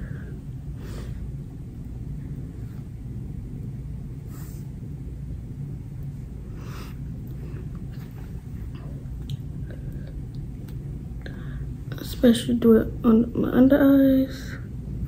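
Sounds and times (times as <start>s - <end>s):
low background rumble: 0.0s - 15.0s
faint breath-like hiss: 4.2s - 4.8s.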